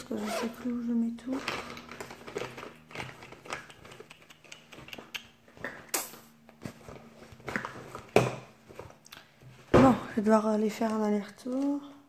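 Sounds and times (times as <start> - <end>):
makeup cases clicking and rustling: 0.5 - 5.8, 6.6 - 9.0.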